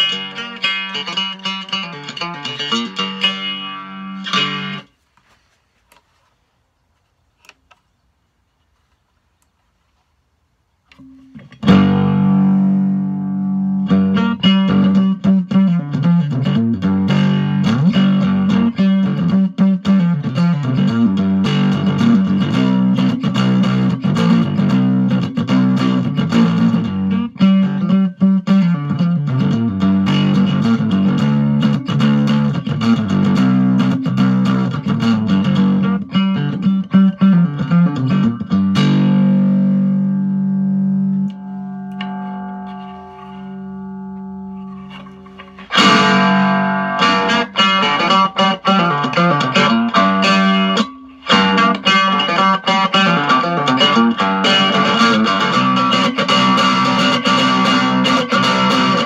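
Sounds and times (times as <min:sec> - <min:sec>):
resonator guitar strummed and picked: 0:00.0 - 0:05.0, 0:10.9 - 0:59.0.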